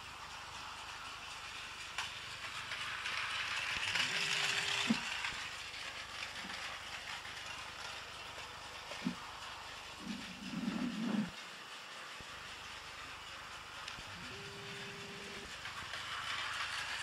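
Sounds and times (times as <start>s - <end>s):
toy train motor whirring: 0.0s - 17.0s
toy train wheels rattling on track: 0.0s - 17.0s.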